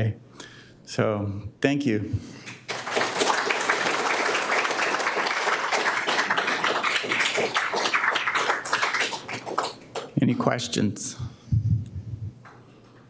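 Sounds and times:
audience applauding: 2.6 - 10.1.

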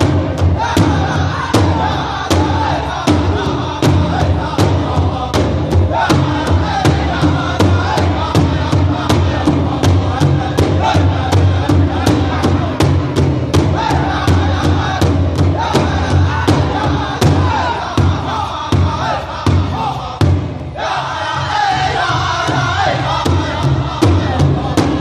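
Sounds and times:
steady drumbeat: 0.0 - 25.0
voices chanting in chorus: 0.0 - 25.0.

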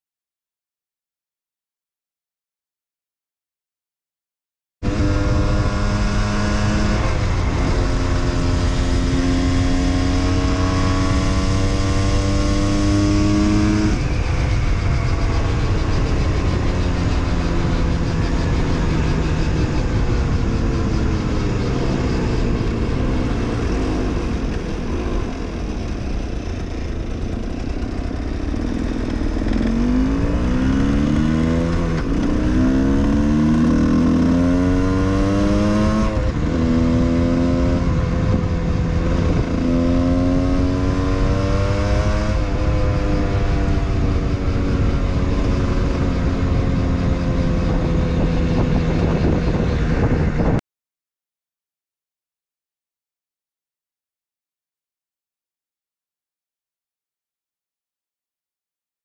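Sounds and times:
motorcycle engine accelerating: 4.8 - 50.6
wind noise: 4.8 - 50.6.

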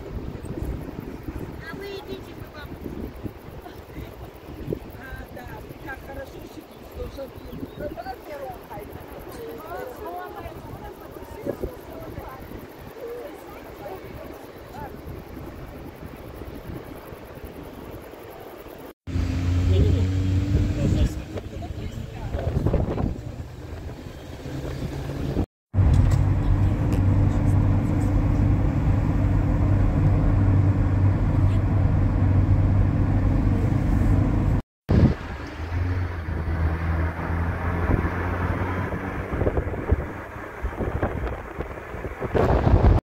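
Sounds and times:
car engine and road noise drone: 17.6 - 43.0.

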